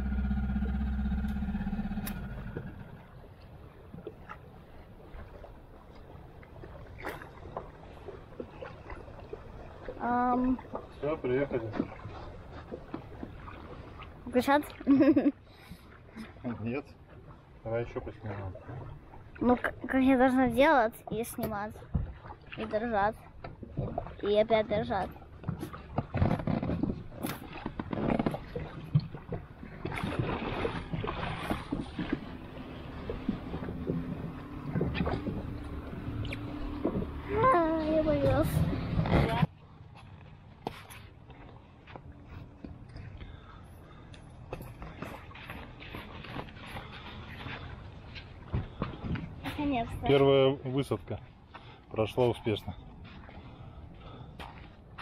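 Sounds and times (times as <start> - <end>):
dinghy rumble in shallow water: 0.0 - 55.0
water splashes: 0.0 - 55.0.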